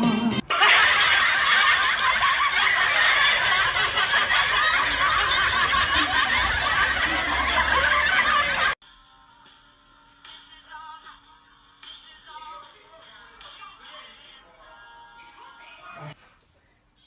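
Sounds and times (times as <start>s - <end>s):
crowd laughing: 0.4s - 8.8s.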